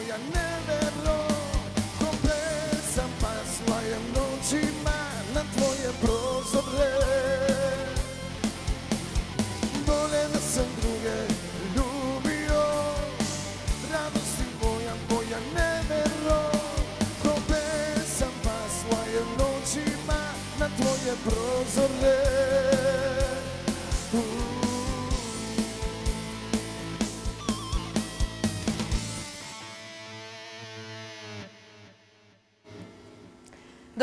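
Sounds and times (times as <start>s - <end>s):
man singing into a microphone: 0.0s - 8.1s, 9.8s - 26.0s.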